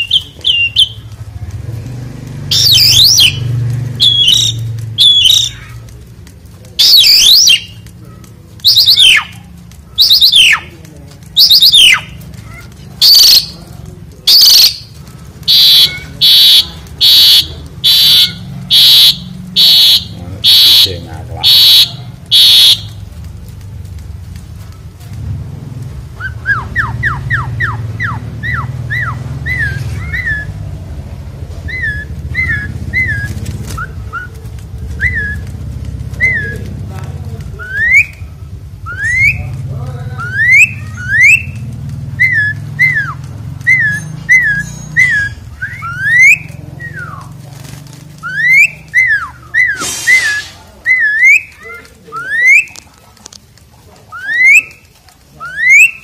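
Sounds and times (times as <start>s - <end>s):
starling whistling song: 0.0s - 1.1s, 2.5s - 5.8s, 6.8s - 7.8s, 8.6s - 9.4s, 10.0s - 10.7s, 11.4s - 12.2s, 13.0s - 13.6s, 14.2s - 23.0s, 26.2s - 30.6s, 31.6s - 35.5s, 36.1s - 36.7s, 37.6s - 39.6s, 40.2s - 47.4s, 48.2s - 52.8s, 54.1s - 56.0s
short hiss: 49.7s - 50.7s.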